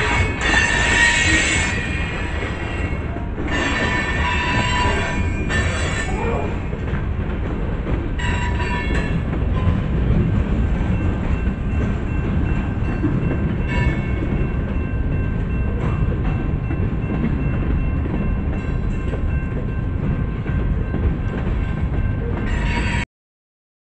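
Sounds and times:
high wheel squeals: 0.0 - 6.5
train wheels rumbling on rails: 0.0 - 23.0.

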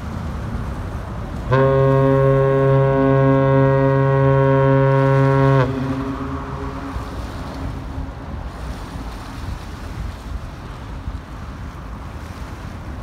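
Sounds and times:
water noise: 0.0 - 13.0
wind: 0.0 - 13.0
ship's horn blast: 1.4 - 9.2.

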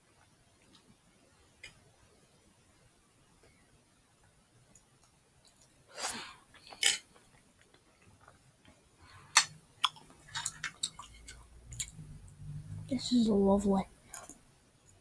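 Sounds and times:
mouth clicks and smacks: 7.6 - 12.0.

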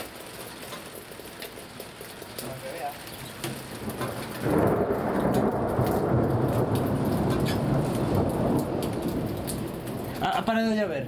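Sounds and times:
thunder rumbling: 3.6 - 11.0.

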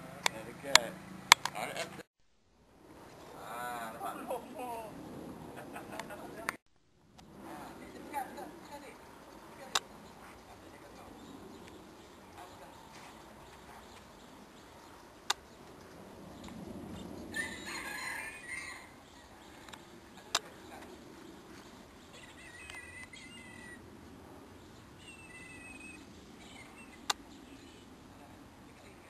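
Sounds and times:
sharp clicks: 0.2 - 1.6, 27.0 - 27.2
bird calls: 7.6 - 29.0.

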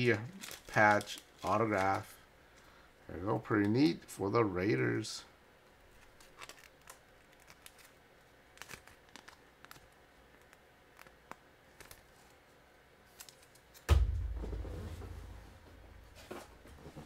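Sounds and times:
plastic sleeves crinkling: 0.0 - 2.2, 5.8 - 13.9
low thump: 13.9 - 15.6.

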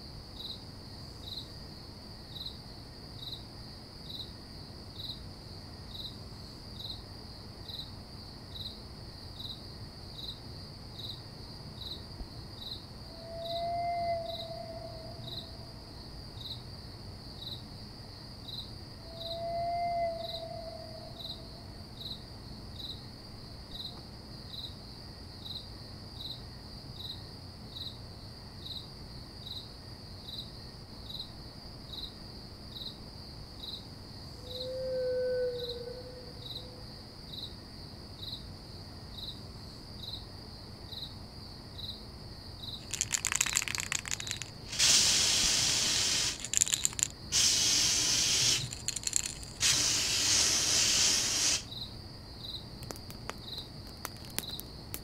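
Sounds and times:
cricket chirping: 0.0 - 55.0
bursts of hissing noise: 42.8 - 51.7.

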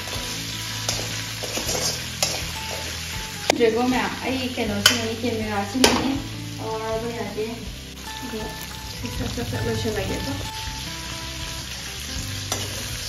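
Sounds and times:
onions sizzling in oil: 0.0 - 13.0
person talking: 3.5 - 10.6.

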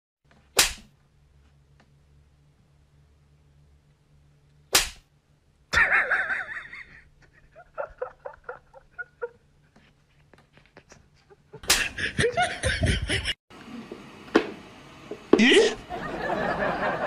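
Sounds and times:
sharp smack: 0.6 - 0.9, 4.7 - 5.1.

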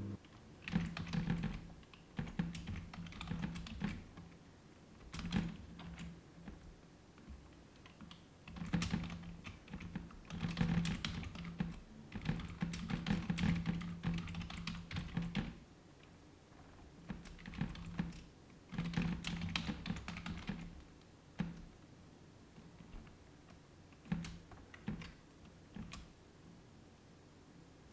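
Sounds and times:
typing on computer keyboard: 0.2 - 4.3, 5.0 - 15.6, 17.0 - 20.8, 23.9 - 26.1.

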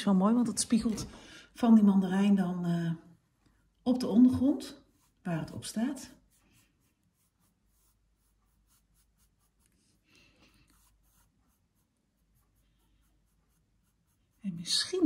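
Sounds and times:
brush strokes on canvas: 4.7 - 15.0.

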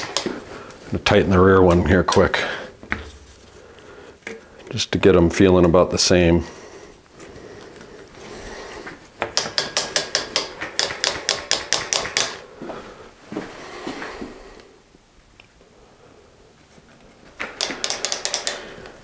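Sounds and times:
bicycle ratcheting clicks: 17.6 - 18.7.

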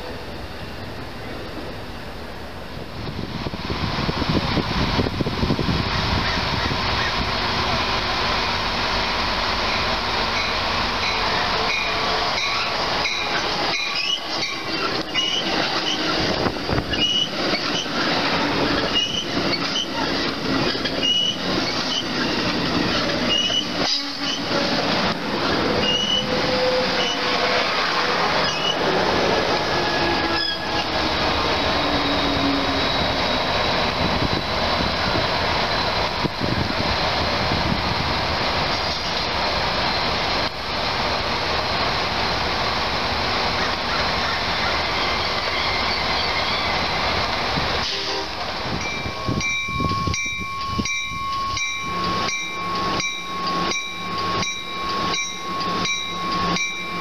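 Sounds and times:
diesel locomotive passing: 0.0 - 57.0
train rolling rumble: 0.0 - 57.0
wheel squeaks and clicks: 10.4 - 16.2, 16.9 - 24.6.

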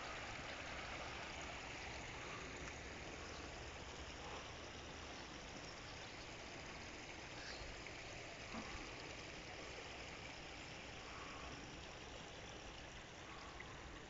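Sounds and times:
even hiss: 0.0 - 14.0.

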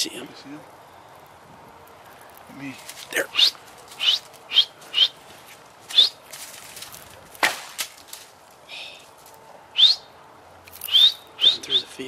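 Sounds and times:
rising bird chirps: 3.2 - 5.3, 5.9 - 6.3, 9.7 - 12.0.

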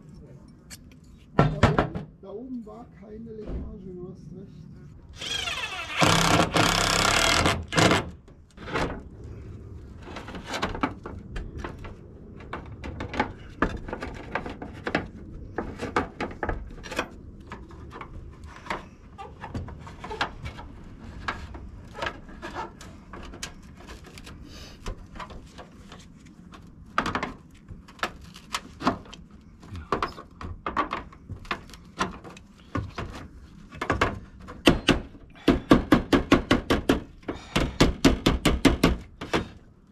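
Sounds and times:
sheet metal clanking and knocking: 1.4 - 2.1.

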